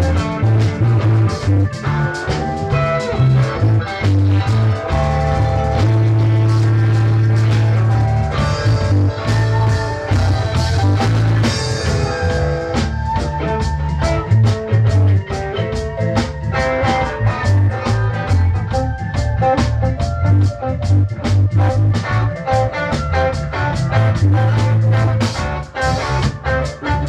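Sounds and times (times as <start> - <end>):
drum kit with cymbal strikes: 0.0 - 27.0
guitars: 0.0 - 27.0
low bass notes: 0.0 - 27.0.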